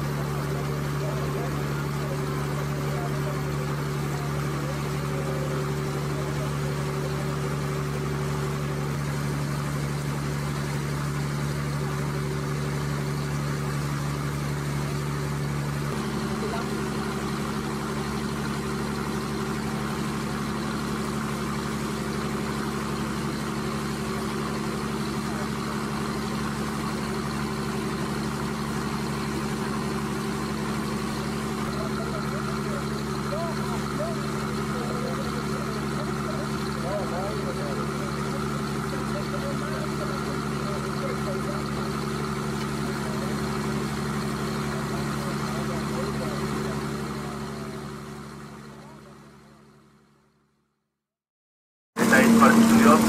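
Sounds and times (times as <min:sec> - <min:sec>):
boat engine running: 0:00.0 - 0:50.3, 0:52.0 - 0:53.0
water rushing past hull: 0:52.0 - 0:53.0.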